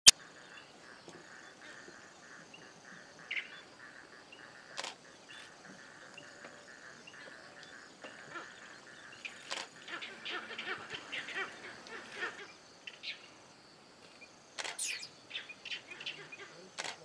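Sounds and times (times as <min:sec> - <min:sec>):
pulsing insect chorus: 0:00.2 - 0:16.8.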